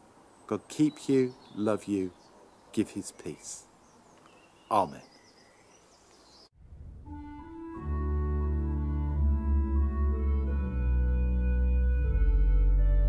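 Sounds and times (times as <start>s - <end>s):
organ chords: 7.0s - 13.0s.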